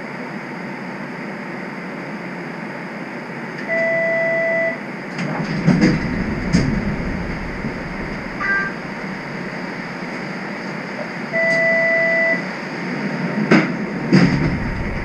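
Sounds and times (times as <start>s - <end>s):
streetcar cabin hum: 4.8s - 15.0s
clunks and thuds: 5.2s - 10.2s, 13.5s - 15.0s
low rumble: 5.2s - 10.8s, 14.0s - 15.0s.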